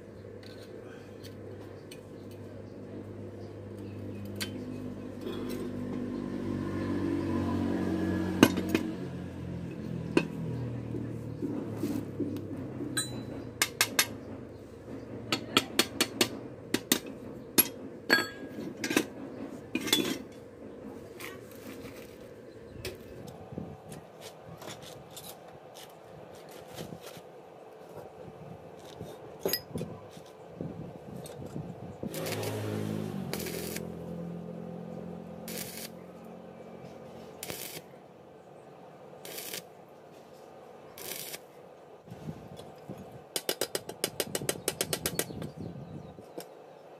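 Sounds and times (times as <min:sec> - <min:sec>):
arc welding crackle: 0:32.1 - 0:34.2, 0:35.4 - 0:36.3, 0:37.4 - 0:37.9, 0:39.2 - 0:39.8, 0:41.0 - 0:41.5.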